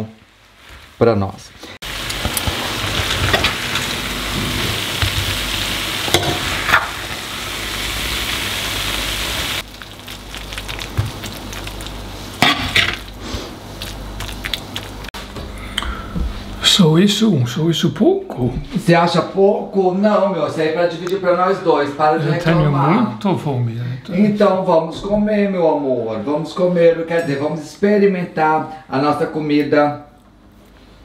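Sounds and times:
rice sizzling in a frying pan: 0:01.8 - 0:15.1.

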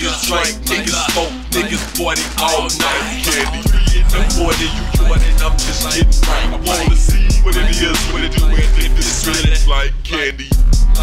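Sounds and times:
hip hop music: 0:00.0 - 0:11.0
rapping: 0:00.0 - 0:11.0
deep bass notes: 0:02.2 - 0:11.0.

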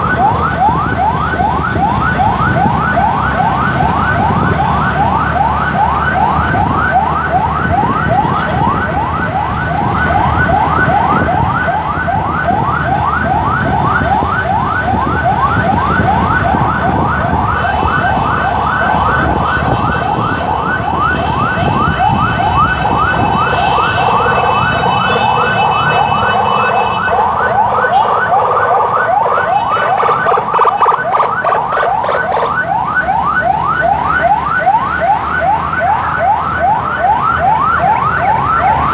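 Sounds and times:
emergency siren yelping: 0:00.0 - 0:38.9
traffic rumble: 0:00.0 - 0:38.9.

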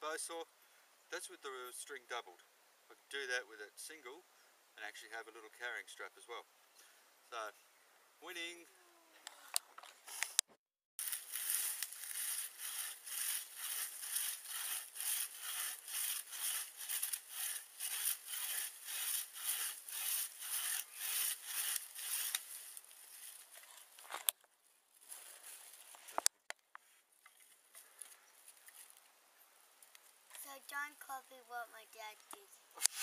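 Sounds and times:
saw cutting through log: 0:11.0 - 0:22.9, 0:32.8 - 0:33.0.

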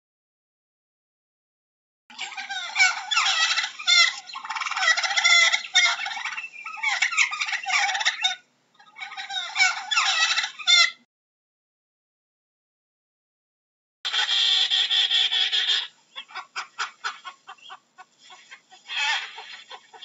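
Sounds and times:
turkey gobbling: 0:02.1 - 0:11.0, 0:14.1 - 0:20.0.

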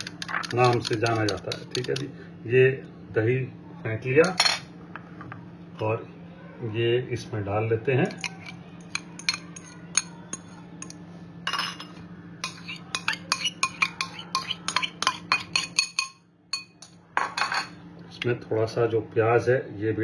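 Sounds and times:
spoon clinking on glass bowl: 0:08.1 - 0:17.7.

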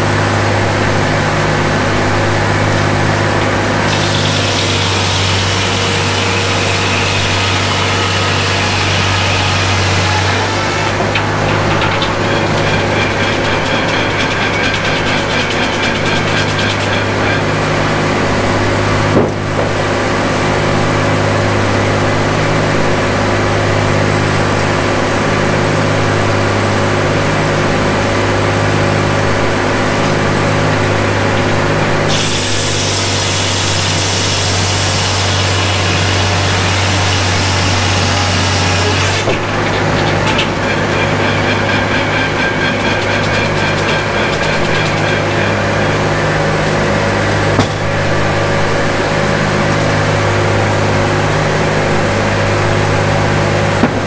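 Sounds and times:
circular blade sawing log: 0:00.0 - 0:18.8, 0:30.7 - 0:54.0
sawmill power unit droning: 0:00.0 - 0:54.0.

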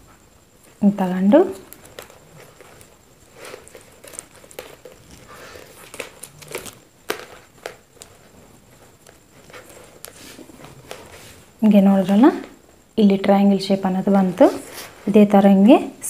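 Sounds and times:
plastic wire rustling and clicking: 0:01.6 - 0:11.2.

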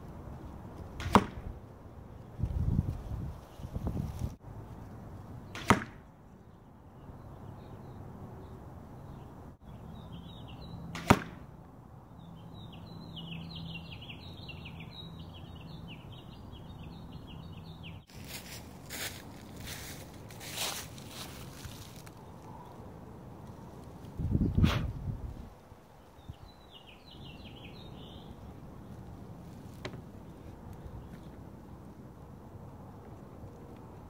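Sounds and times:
arrows striking foam target: 0:01.0 - 0:01.5, 0:05.5 - 0:06.1, 0:10.9 - 0:11.5.

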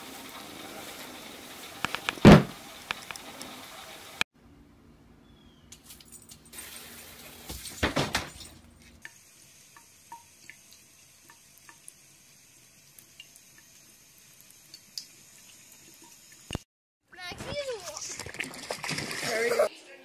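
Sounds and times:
tap running into a sink: 0:01.8 - 0:03.2.

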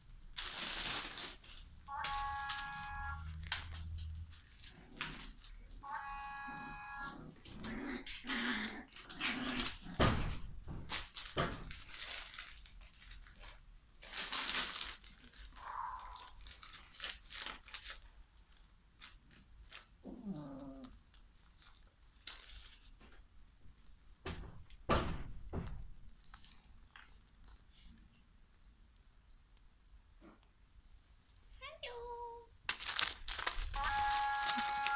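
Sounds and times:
paper rustling: 0:00.3 - 0:05.8, 0:10.8 - 0:20.0, 0:21.2 - 0:23.3, 0:32.7 - 0:34.9
puppies growling and whining: 0:06.0 - 0:10.4, 0:20.0 - 0:21.0.

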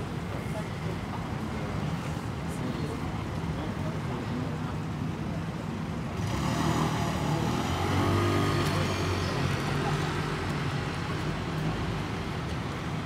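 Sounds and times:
low traffic rumble: 0:00.0 - 0:13.0
passing vehicle engine: 0:06.2 - 0:11.5.

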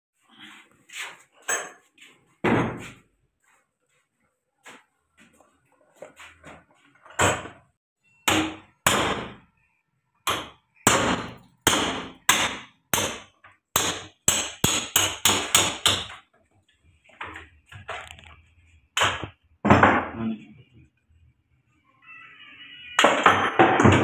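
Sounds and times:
hammer striking metal: 0:08.2 - 0:09.4, 0:10.3 - 0:13.2, 0:13.8 - 0:16.1.

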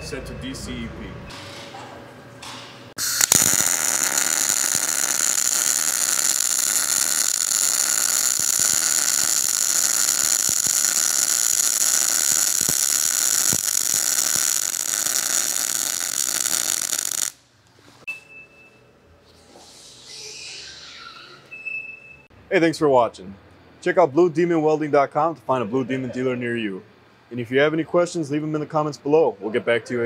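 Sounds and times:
welding arc sizzling hiss: 0:03.0 - 0:17.4.

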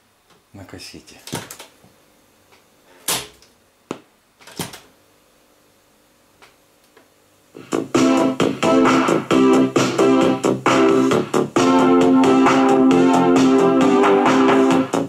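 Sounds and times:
keyboard music from speakers: 0:07.6 - 0:15.0.

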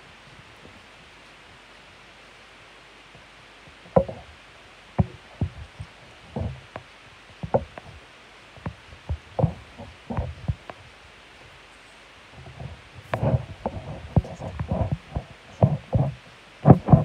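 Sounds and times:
irregular knocks and taps: 0:05.0 - 0:07.9, 0:12.6 - 0:17.0.

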